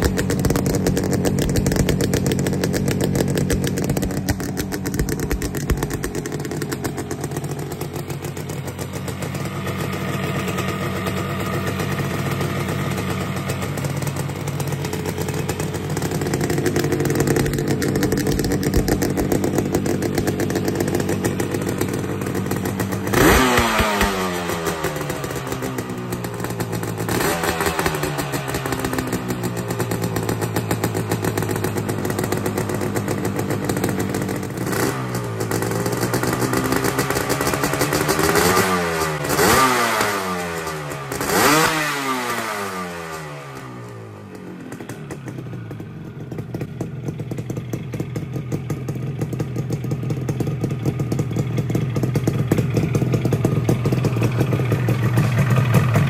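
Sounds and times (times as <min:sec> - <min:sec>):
motorcycle engine idling and revving: 0:00.0 - 0:56.0.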